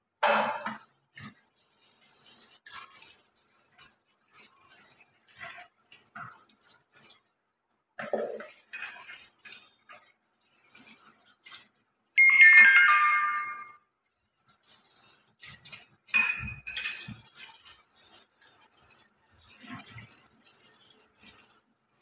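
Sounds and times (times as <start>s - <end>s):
cookware clicks and knocks: 0.2s - 0.8s, 16.2s - 17.3s.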